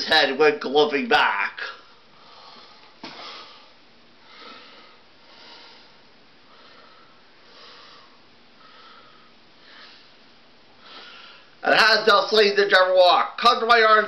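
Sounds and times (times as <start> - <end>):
person breathing softly: 1.8 - 11.6.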